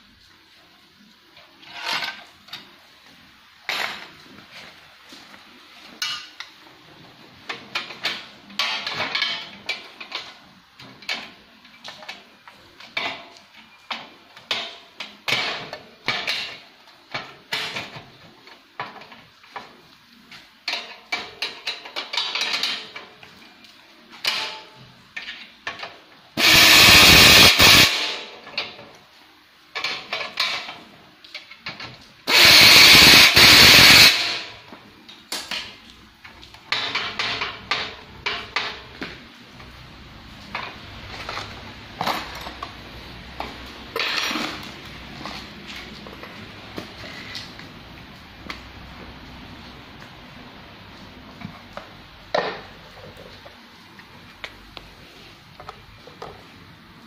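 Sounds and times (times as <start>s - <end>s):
power tool bursts: 26.4s - 28.3s, 32.3s - 34.6s.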